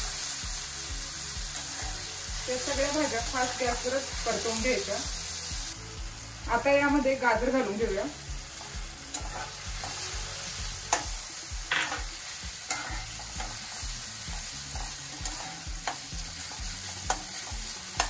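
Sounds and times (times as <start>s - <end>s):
vegetables sizzling in a pan: 0.0s - 18.0s
metal spatula scraping a pan: 1.6s - 2.8s, 8.5s - 18.0s.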